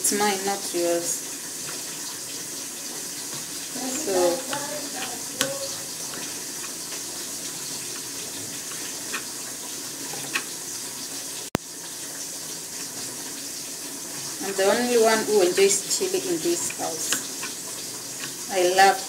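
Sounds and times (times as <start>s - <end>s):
steady watery hiss: 0.0s - 19.0s.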